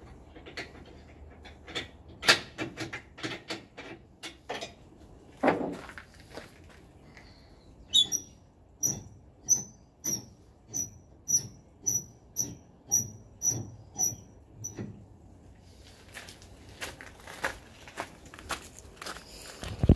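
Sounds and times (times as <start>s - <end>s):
metallic squeaking of crane post: 7.8s - 15.0s.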